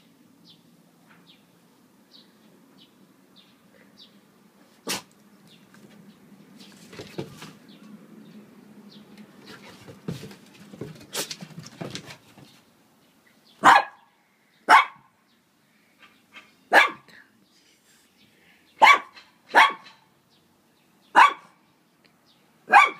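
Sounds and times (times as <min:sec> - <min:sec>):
knocks and scuffles: 0:06.6 - 0:07.7, 0:09.4 - 0:12.6
dog barking: 0:13.6 - 0:14.1, 0:14.7 - 0:15.1, 0:16.7 - 0:17.1, 0:18.8 - 0:20.0, 0:21.2 - 0:21.5, 0:22.7 - 0:22.9.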